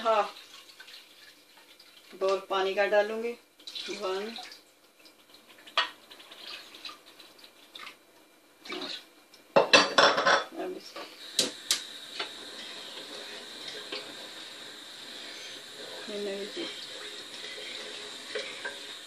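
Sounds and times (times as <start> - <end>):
crockery clattering: 9.6 - 10.5
gas burner hissing: 10.8 - 19.0
gas stove igniter clicks: 11.4 - 12.3.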